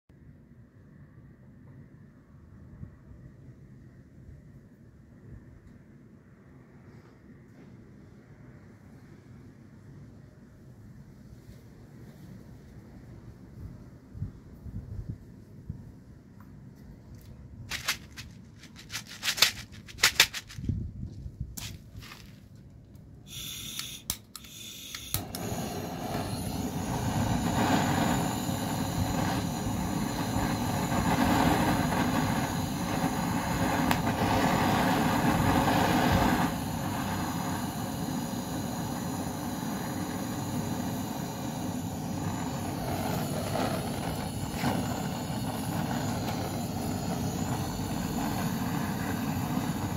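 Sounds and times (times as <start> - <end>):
heating tool hissing: 23.3 - 49.9.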